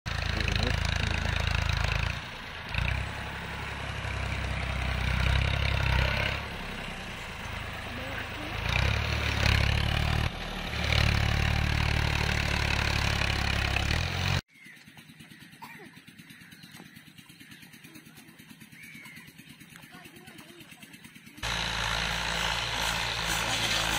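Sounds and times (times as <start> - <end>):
tractor diesel engine under load: 0.1 - 14.5, 19.7 - 23.9.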